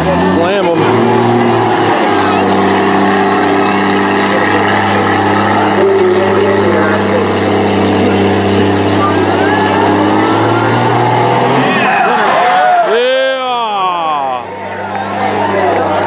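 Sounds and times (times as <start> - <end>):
car engine running hard: 0.0 - 12.9, 13.6 - 16.0.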